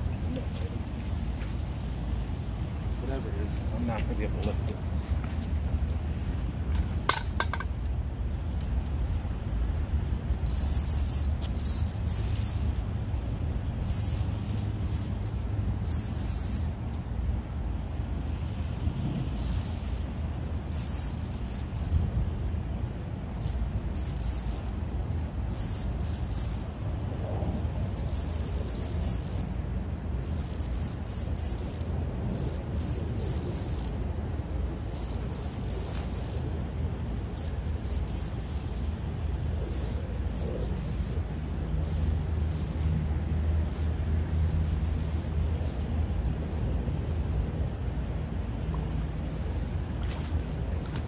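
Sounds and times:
fishing reel rasping: 0:10.2 - 0:12.9, 0:13.8 - 0:16.9, 0:19.3 - 0:22.1, 0:23.4 - 0:24.8, 0:25.5 - 0:26.8, 0:27.8 - 0:29.5, 0:30.1 - 0:36.6, 0:37.2 - 0:39.0, 0:39.6 - 0:43.0, 0:43.6 - 0:47.3, 0:49.2 - 0:51.0.

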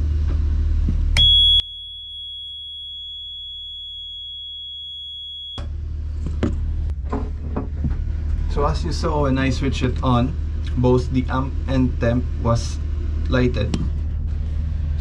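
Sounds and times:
alarm buzzer high tone: 0:01.2 - 0:05.7.

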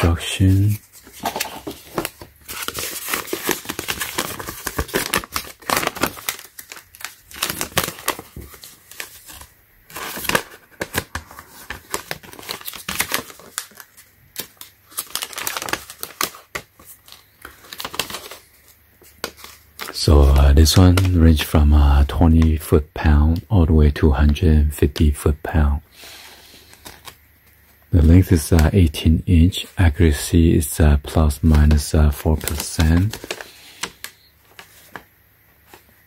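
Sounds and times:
paper rustling and crinkling: 0:00.0 - 0:21.2, 0:26.0 - 0:28.7, 0:31.4 - 0:36.0.

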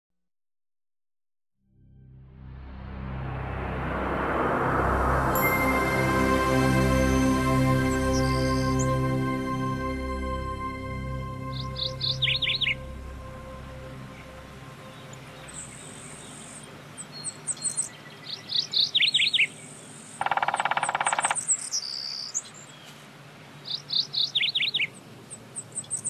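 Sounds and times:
bird whistling downward notes: 0:11.5 - 0:19.5.

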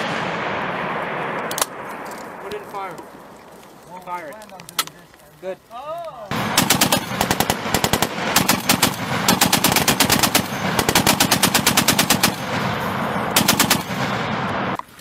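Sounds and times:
machine gun firing bursts: 0:06.3 - 0:14.8.

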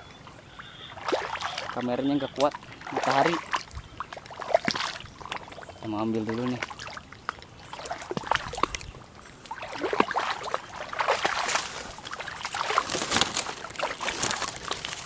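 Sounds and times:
dry grass rustling and crackling: 0:07.6 - 0:15.0.

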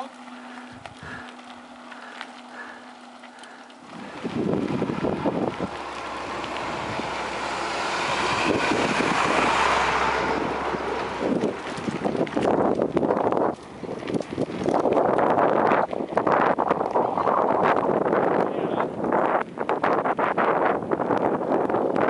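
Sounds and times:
truck engine rumble: 0:00.0 - 0:22.0
wind rushing over microphone: 0:03.8 - 0:22.0.

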